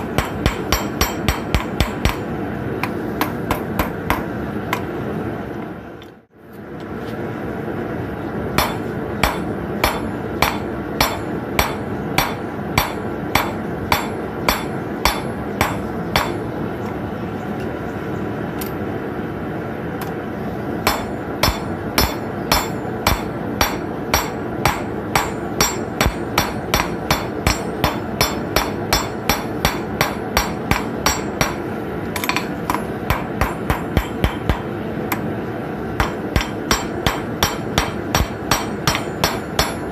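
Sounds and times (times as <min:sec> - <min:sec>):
hammer striking hot metal on anvil: 0:00.0 - 0:04.9, 0:08.6 - 0:16.6, 0:20.8 - 0:35.2, 0:36.0 - 0:39.9.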